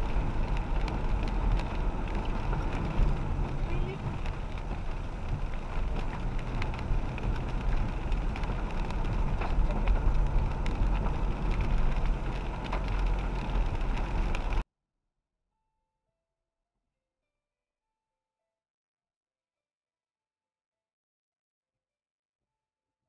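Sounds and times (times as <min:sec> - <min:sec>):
car engine and road rumble: 0:00.0 - 0:14.6.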